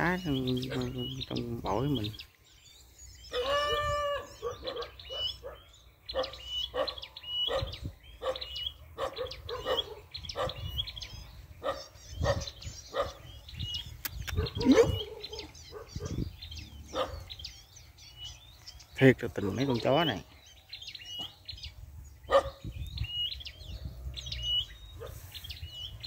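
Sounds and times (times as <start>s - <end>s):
songbirds chirping: 0.0s - 26.0s
dog barking: 3.3s - 10.7s, 11.6s - 13.3s, 14.3s - 16.2s, 16.9s - 17.4s, 22.3s - 22.7s.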